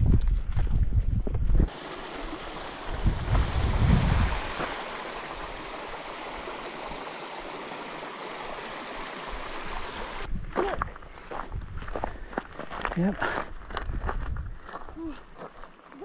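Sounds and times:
wind buffeting microphone: 0.0s - 4.8s, 10.2s - 12.3s, 13.6s - 14.8s
stream running over rocks: 1.7s - 10.3s.

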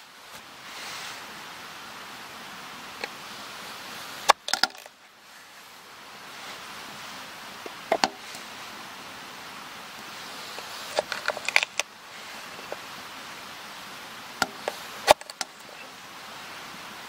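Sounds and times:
background hiss: 0.0s - 17.0s.

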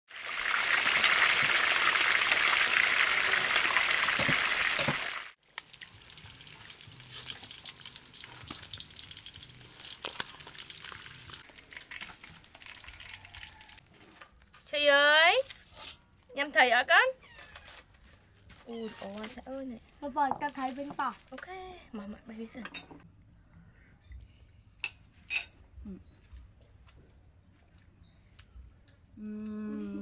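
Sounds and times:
fish sizzling in hot oil: 0.1s - 13.9s.

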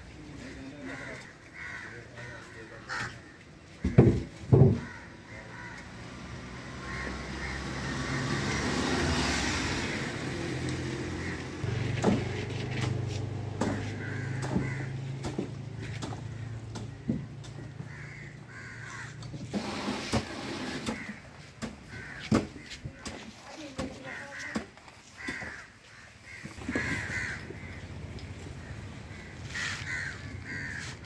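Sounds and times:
crows cawing: 0.4s - 9.2s, 9.8s - 12.8s, 13.5s - 19.4s, 20.6s - 23.2s, 23.9s - 31.0s
low engine hum: 4.9s - 21.1s
vehicle passing: 4.9s - 22.7s
sharp thumps: 11.6s - 17.7s.

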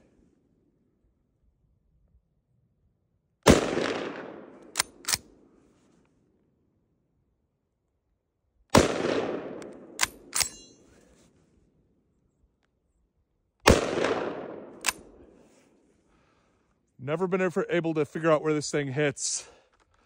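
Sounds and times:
rifle shots with echo: 3.4s - 5.6s, 8.7s - 10.9s, 13.6s - 15.5s
rifle bolt metallic clacks: 4.6s - 5.4s, 9.6s - 11.1s, 14.7s - 15.2s.

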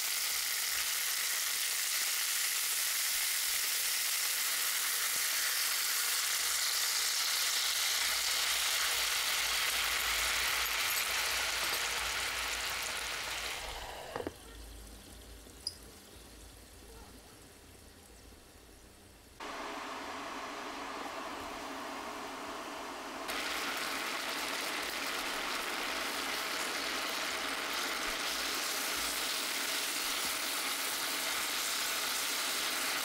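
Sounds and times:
chicken sizzling in hot oil: 0.0s - 17.0s, 23.2s - 33.0s.

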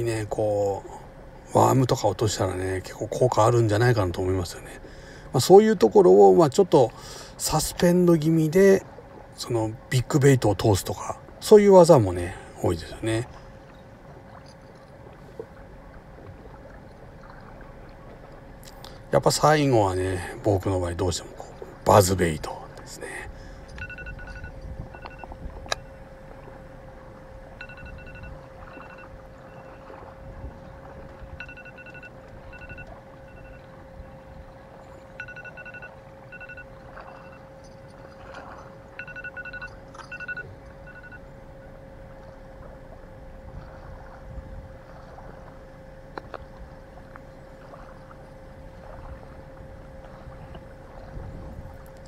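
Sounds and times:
faint steady hum: 0.0s - 52.0s
wind buffeting microphone: 23.3s - 25.8s, 27.7s - 31.5s, 43.4s - 45.4s, 48.7s - 52.0s.

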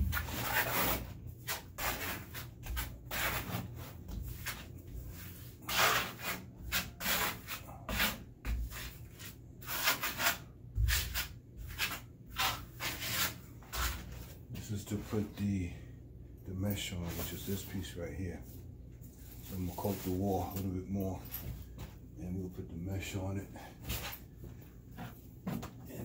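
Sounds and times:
trowel scraping a wall: 0.0s - 14.3s.

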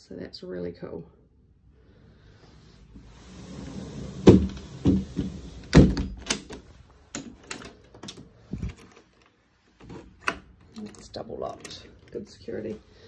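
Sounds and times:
loud knocks on sliding door: 4.2s - 6.0s
door lock clicks and rattles: 5.7s - 9.2s.

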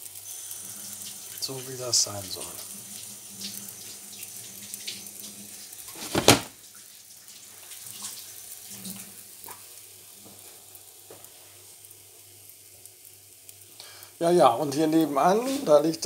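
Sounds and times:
batter sizzling in a pan: 0.0s - 16.0s
loud thump: 6.0s - 6.5s.

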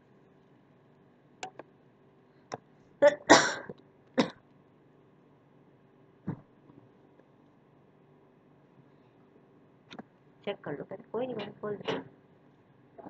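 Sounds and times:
person clearing throat: 3.0s - 4.4s
person coughing: 3.0s - 4.4s.

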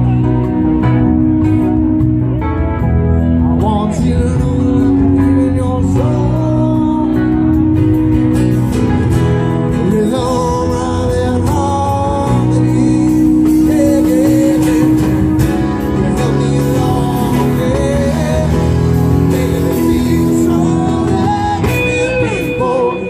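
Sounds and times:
live rock band playing: 0.0s - 23.0s
man singing lead vocal: 3.4s - 8.2s, 9.5s - 23.0s.

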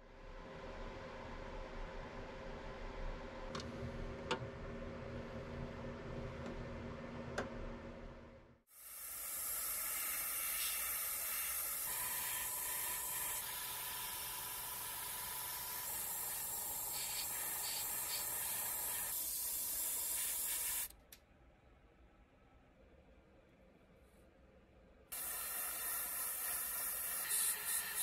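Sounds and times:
airbrush spraying hiss: 9.0s - 20.9s, 25.2s - 28.0s.

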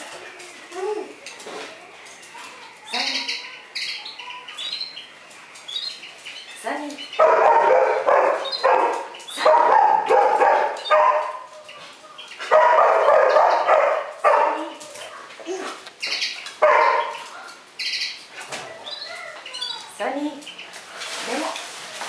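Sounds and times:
dog barking: 7.2s - 11.5s, 12.4s - 14.8s, 16.6s - 17.6s.

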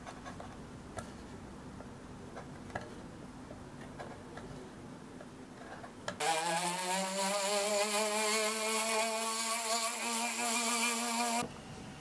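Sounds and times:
rotary tool whining: 6.2s - 11.5s.

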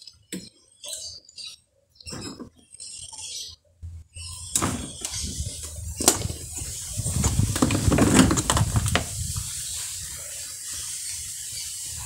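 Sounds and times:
motor rattling and scraping: 5.0s - 9.4s.

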